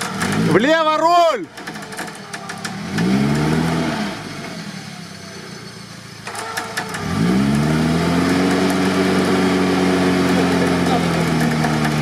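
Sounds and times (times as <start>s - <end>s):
engine revving hard: 2.6s - 5.0s, 6.7s - 12.0s.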